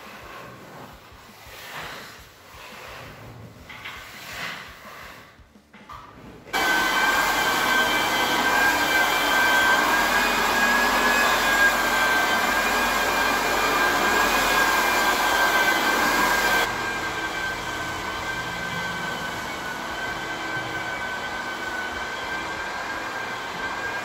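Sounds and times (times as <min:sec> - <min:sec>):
floor sander motor whine: 0:06.6 - 0:24.0
vacuum air rush: 0:06.6 - 0:24.0.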